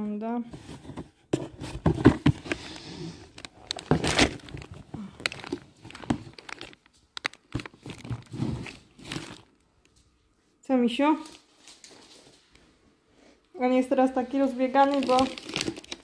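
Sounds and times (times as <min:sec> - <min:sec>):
plastic packets crinkling: 0:02.4 - 0:10.1, 0:14.2 - 0:16.0.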